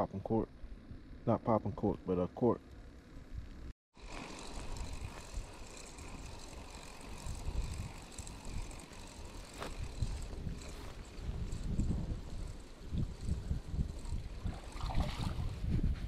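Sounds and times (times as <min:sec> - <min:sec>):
wind buffeting microphone: 0:04.6 - 0:16.0.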